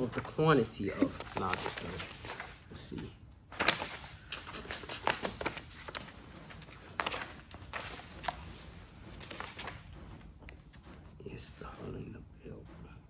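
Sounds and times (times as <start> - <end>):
paper pages rustling: 1.0 - 2.7, 3.5 - 9.9.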